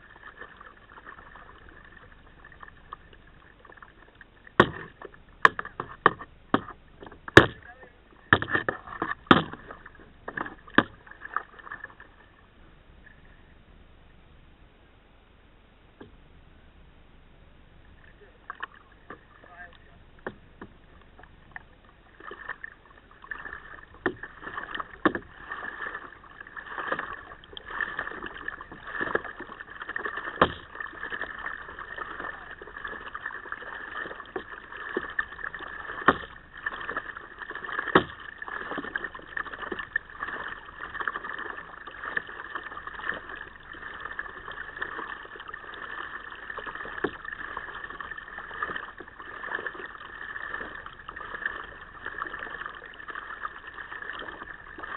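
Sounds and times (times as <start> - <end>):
paddle splashing water: 0.0 - 13.7, 17.8 - 54.9
sharp knocks: 4.6 - 6.8, 7.4 - 7.6, 9.3 - 9.6.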